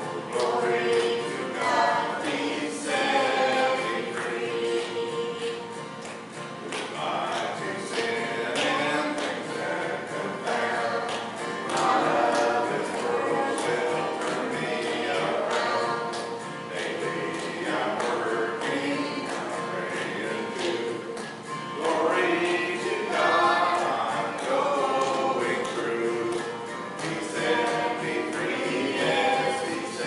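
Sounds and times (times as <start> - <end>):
keyboard: 0.0 - 30.0
person singing a gospel hymn: 0.0 - 30.0
strummed acoustic guitar: 0.0 - 30.0.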